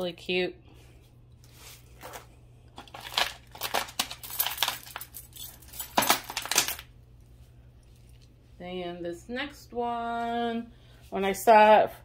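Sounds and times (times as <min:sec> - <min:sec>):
packaging crinkling and rustling: 0:01.4 - 0:06.9.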